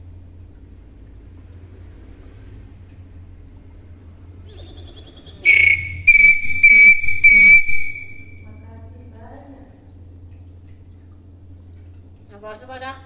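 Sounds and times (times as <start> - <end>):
hill myna whistling: 4.4 - 8.4.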